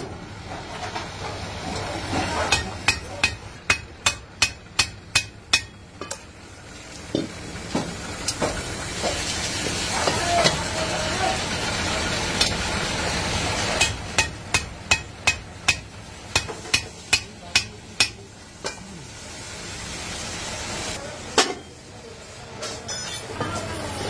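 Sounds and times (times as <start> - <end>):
hammer striking metal pan: 2.5 - 6.2, 13.8 - 18.8.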